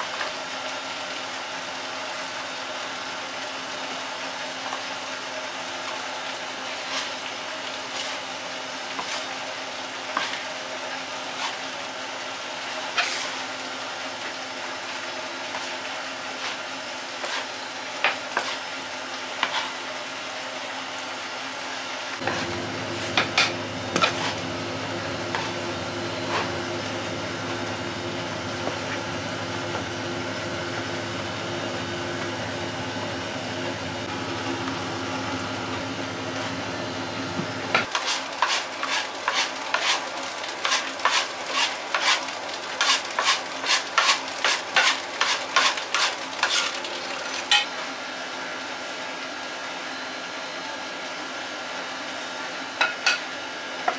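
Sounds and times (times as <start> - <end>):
dough rustling hiss: 6.7 - 11.8, 12.5 - 13.6, 14.7 - 18.8.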